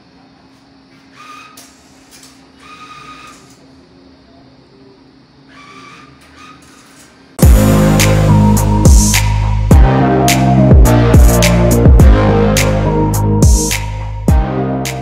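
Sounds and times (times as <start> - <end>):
loud music: 7.4 - 15.0.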